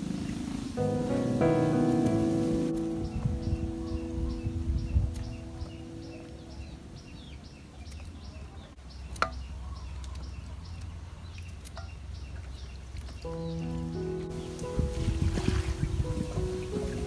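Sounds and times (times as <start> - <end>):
bird chirping: 0.0 - 17.0
music: 0.8 - 7.0, 13.3 - 17.0.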